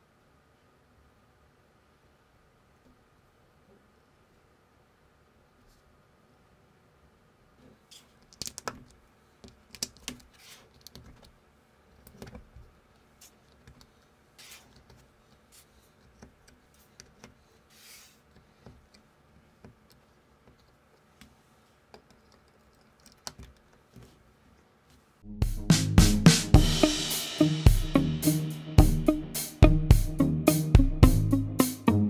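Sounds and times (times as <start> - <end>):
plastic bricks clicking: 8.2 - 11.3, 21.9 - 23.8.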